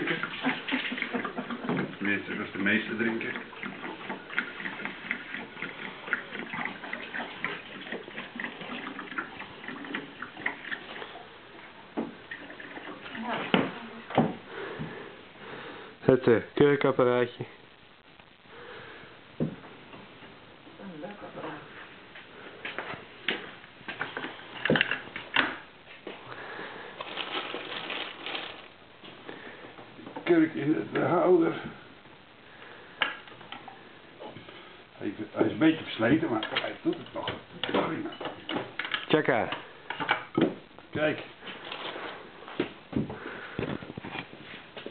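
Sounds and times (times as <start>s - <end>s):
wine gurgling into a bottle: 0.0s - 14.0s
soft rustling handling noise: 26.9s - 30.3s, 41.0s - 44.9s.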